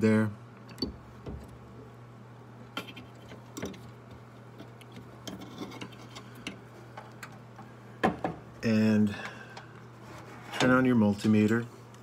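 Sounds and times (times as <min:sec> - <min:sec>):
steady low hum: 0:00.0 - 0:12.0
metal parts being handled: 0:04.6 - 0:07.4.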